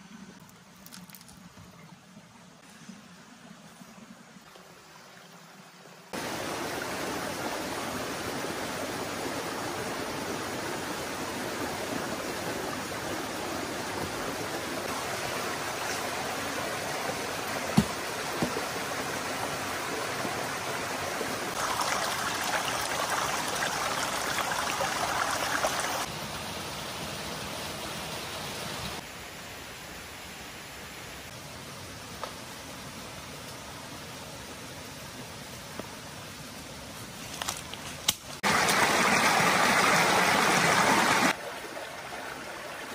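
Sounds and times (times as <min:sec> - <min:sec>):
stream splashing over stones: 0:13.4 - 0:26.1, 0:38.4 - 0:42.9.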